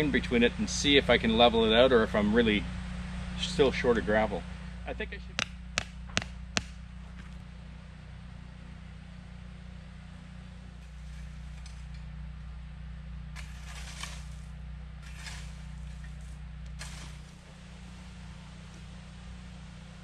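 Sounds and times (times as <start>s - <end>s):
steady low hum: 0.0s - 20.0s
rake scraping through gravel: 10.7s - 12.1s, 13.3s - 18.3s.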